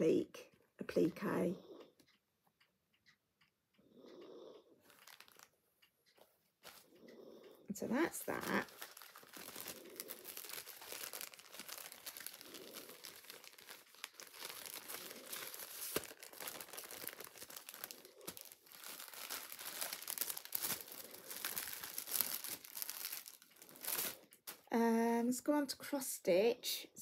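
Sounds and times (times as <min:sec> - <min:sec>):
small crackles and clicks: 0:00.4 - 0:24.8
crinkling and rustling materials: 0:04.8 - 0:07.1, 0:07.7 - 0:24.8.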